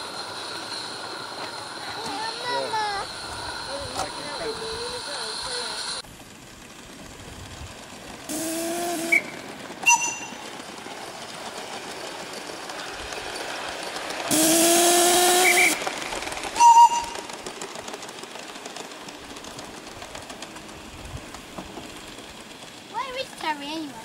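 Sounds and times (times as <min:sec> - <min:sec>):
hiss of steam: 0:00.0 - 0:06.0, 0:08.3 - 0:10.2, 0:13.0 - 0:17.0
steam whistle blasts: 0:08.3 - 0:10.4, 0:14.3 - 0:15.8, 0:16.6 - 0:17.2.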